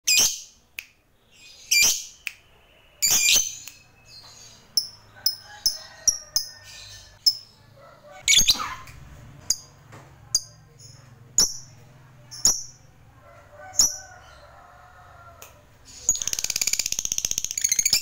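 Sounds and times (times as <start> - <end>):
bird chirping: 0.1 - 12.9, 15.8 - 18.0
bird screeching: 8.2 - 9.0.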